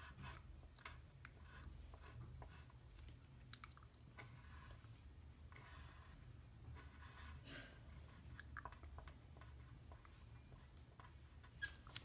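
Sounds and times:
pen scratching on paper: 5.5s - 8.4s.

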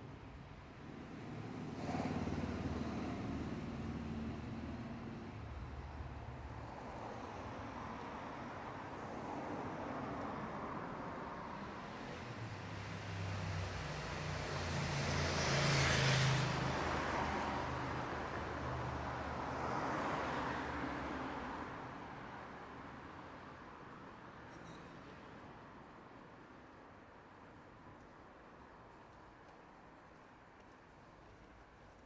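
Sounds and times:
street ambience: 0.0s - 32.0s
vehicle driving past: 1.2s - 5.3s, 12.7s - 17.7s.

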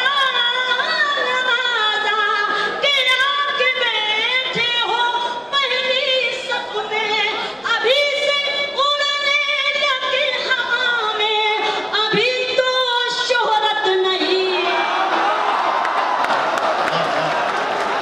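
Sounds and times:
woman singing unaccompanied: 0.0s - 14.6s.

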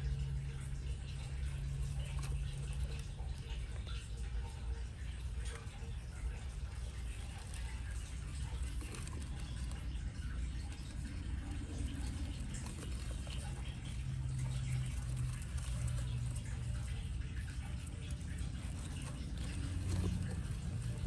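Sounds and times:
faint rustles and ticks: 0.0s - 21.0s
low steady hum: 0.0s - 21.0s
small animals scratching in bedding: 6.8s - 21.0s.

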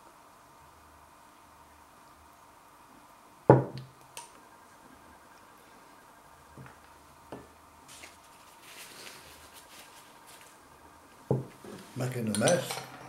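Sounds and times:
glass bottle thud on worktop: 3.5s - 3.8s.

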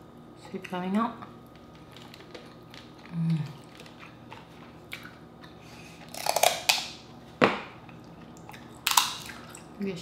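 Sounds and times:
crab shell cracking: 8.8s - 9.4s.

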